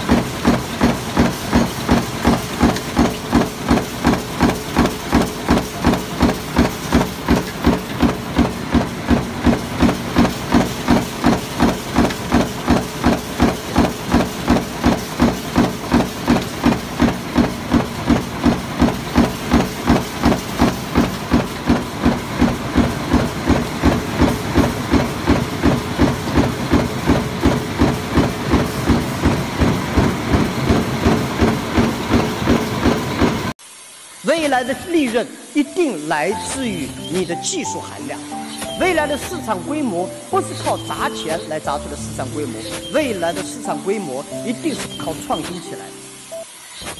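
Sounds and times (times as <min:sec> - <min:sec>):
stamping press knocking: 0:00.0 - 0:33.5
steady machine hum: 0:00.0 - 0:42.5.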